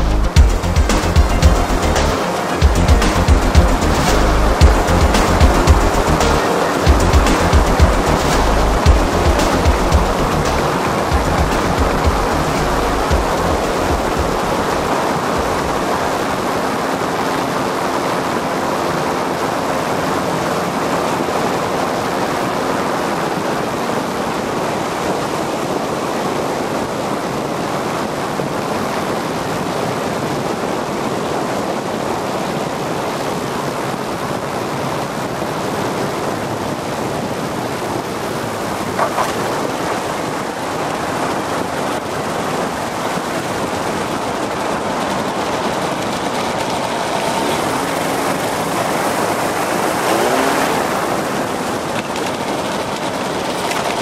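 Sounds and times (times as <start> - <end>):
engine droning: 0.0 - 24.7, 35.7 - 54.0
rush of airflow: 34.8 - 54.0.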